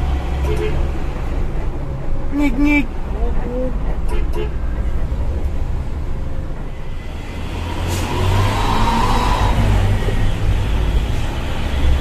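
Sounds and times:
truck diesel engine running: 0.0 - 8.3
road noise: 0.0 - 12.0.

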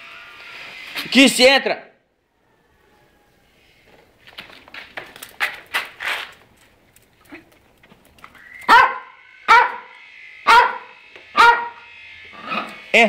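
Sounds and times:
small dog barking sharply: 8.7 - 9.9, 10.5 - 11.8.

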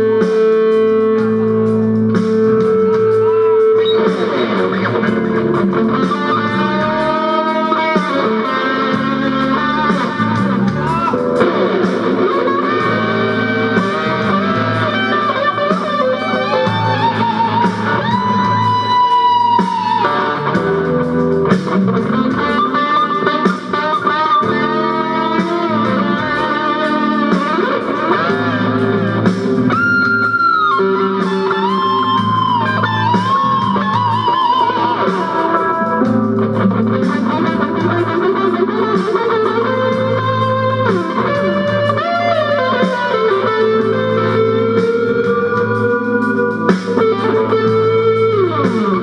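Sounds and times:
electric guitar lead with bends: 0.0 - 49.0
low bass part: 8.8 - 19.4.

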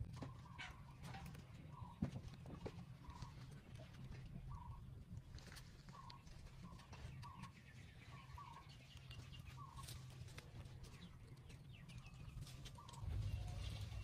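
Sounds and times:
low rumble: 12.9 - 14.0.

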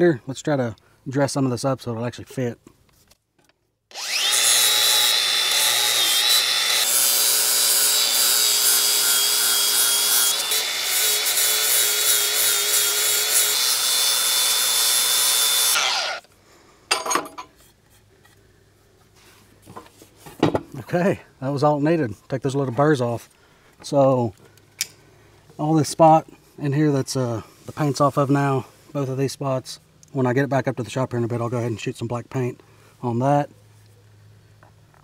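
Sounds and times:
angle grinder grinding metal: 3.9 - 16.3.

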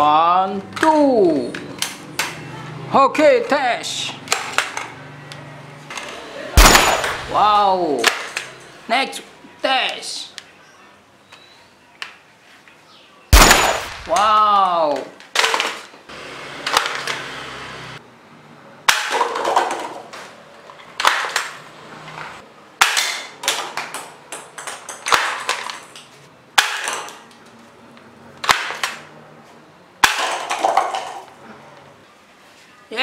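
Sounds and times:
paper cups clattering: 30.2 - 31.3.

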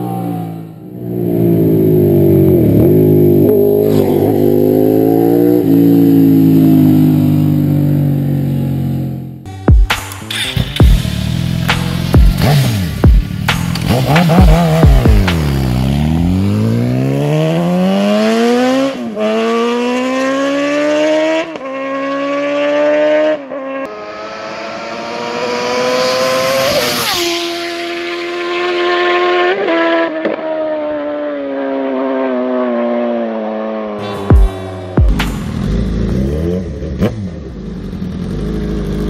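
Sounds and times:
motorcycle engine accelerating: 0.0 - 39.0
motorcycle passing by: 12.2 - 34.8.

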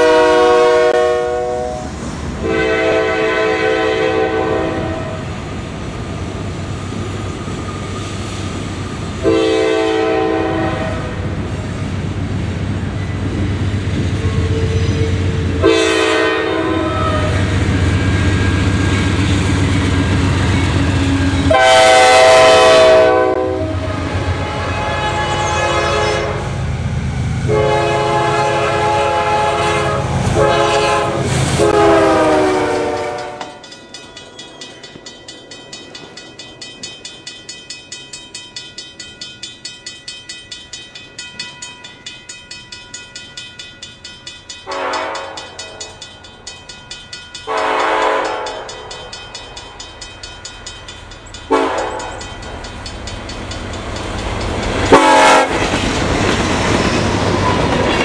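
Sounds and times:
locomotive air horn blasts: 0.0 - 1.8, 2.4 - 5.2, 9.2 - 11.2, 15.6 - 17.4, 21.4 - 26.5, 27.5 - 33.6, 44.7 - 45.6, 47.5 - 48.7, 51.5 - 52.1, 54.9 - 55.6
low rumble of passing train: 0.0 - 58.0.

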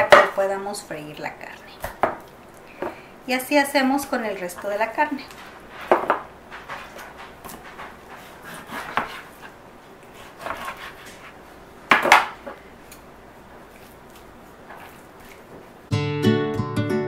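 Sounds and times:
knife cutting meat on board: 8.2 - 9.6, 10.2 - 11.4.

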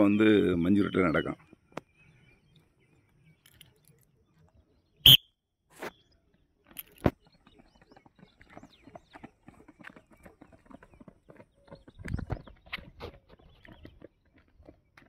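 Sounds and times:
footsteps on bare rock: 7.1 - 15.0.

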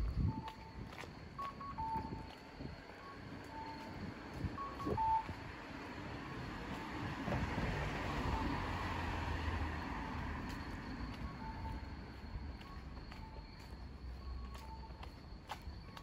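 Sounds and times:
car driving past: 6.1 - 11.6.

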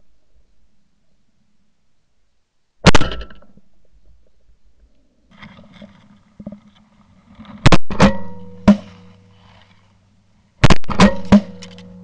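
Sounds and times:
shotgun blasts: 2.8 - 3.4, 10.6 - 12.0.

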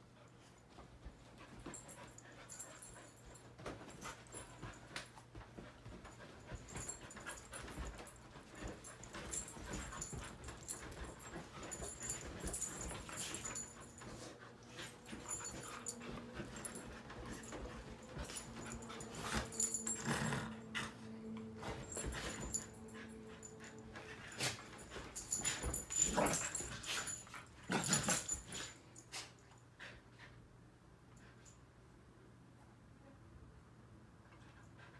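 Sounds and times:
dogs scuffling on bedding: 1.1 - 28.8
dogs growling and whining: 14.8 - 27.0.

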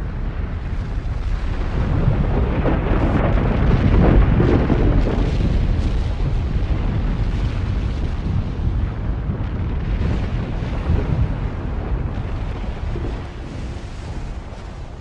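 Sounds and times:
explosion rumbling: 0.0 - 15.0.

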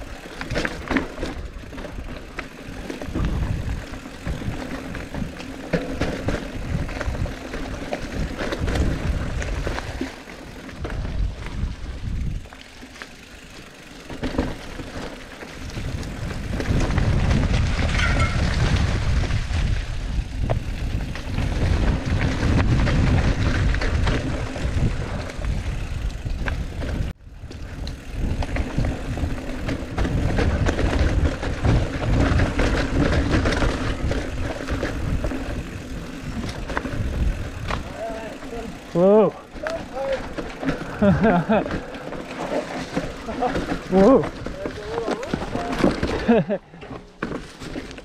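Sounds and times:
bike chain and frame rattling: 0.0 - 48.0
bike tyres on dirt and rock: 0.0 - 48.0
wind rushing over microphone: 3.0 - 5.4, 15.6 - 38.0.

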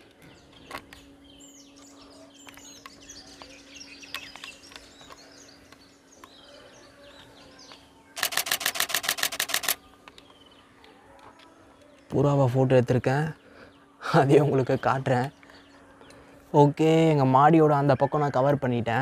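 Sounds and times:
small birds chirping: 0.0 - 18.0
faint steady hum: 0.0 - 19.0
camera shutter rapid burst: 8.2 - 9.8.

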